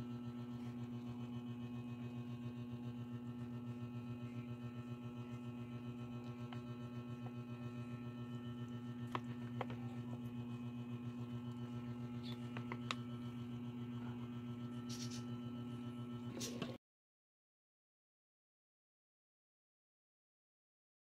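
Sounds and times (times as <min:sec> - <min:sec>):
steady low fluttering hum: 0:00.0 - 0:16.8.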